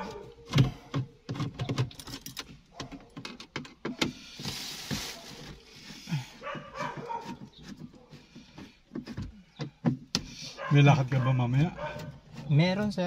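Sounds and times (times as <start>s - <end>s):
small clicks taps and rattles: 0.5s - 4.1s.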